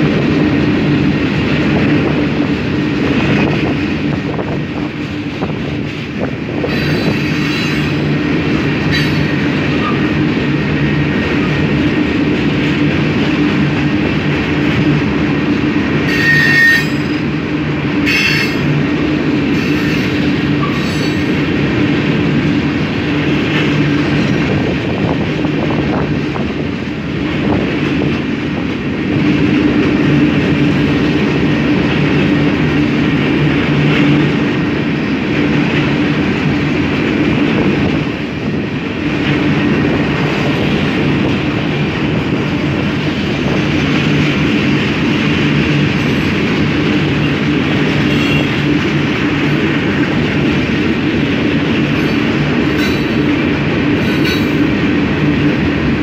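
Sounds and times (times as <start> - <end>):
train wheels rumbling on rails: 0.0 - 56.0
high wheel squeals: 16.1 - 17.2, 19.6 - 21.4, 48.1 - 48.6.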